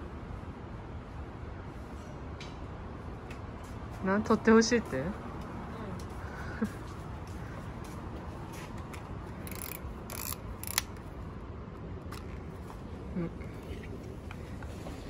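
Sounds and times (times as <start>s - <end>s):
camera ratcheting clicks: 9.3s - 11.1s.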